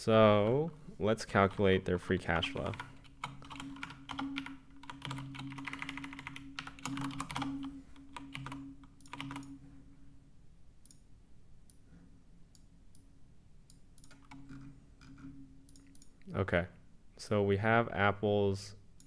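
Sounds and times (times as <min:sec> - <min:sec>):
rapid typing on a keyboard: 0:02.4 - 0:09.6.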